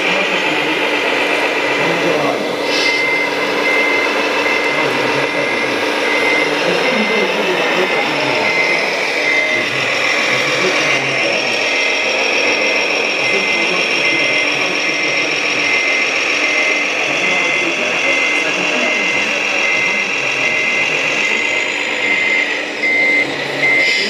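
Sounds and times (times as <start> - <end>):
hydraulic pump whining: 0.0 - 24.0
short high beep: 2.7 - 12.0, 15.6 - 24.0.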